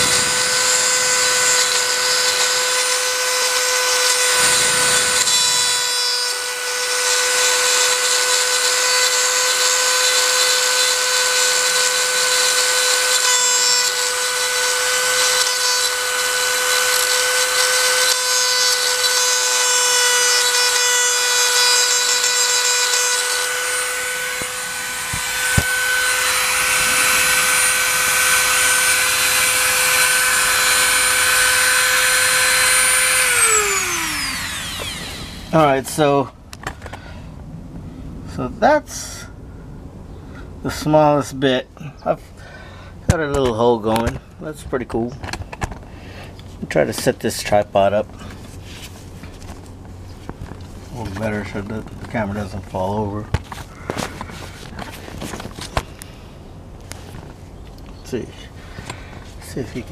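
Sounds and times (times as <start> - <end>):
rotary tool grinding metal: 0.0 - 36.0.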